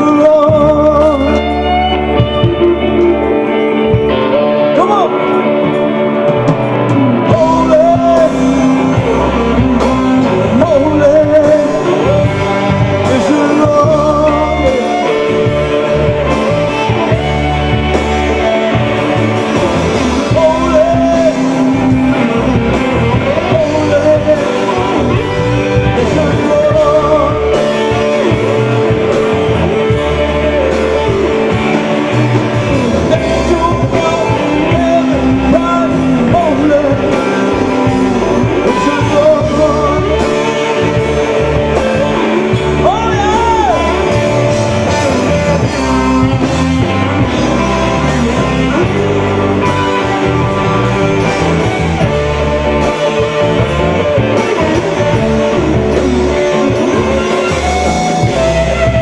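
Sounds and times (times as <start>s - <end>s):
man singing: 0.0s - 59.0s
rock band playing: 0.0s - 59.0s.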